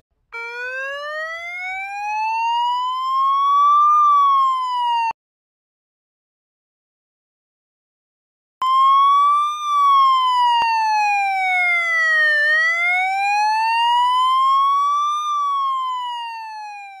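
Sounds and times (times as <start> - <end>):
electronic police siren wailing: 0.4 - 5.2, 8.6 - 17.0.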